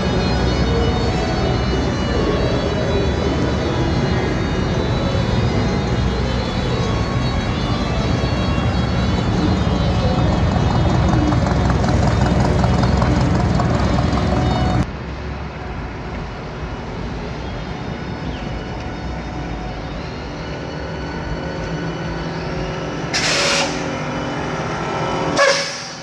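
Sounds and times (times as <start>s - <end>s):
car engine running: 0.0s - 14.8s
pickup engine driving up close: 0.0s - 14.9s.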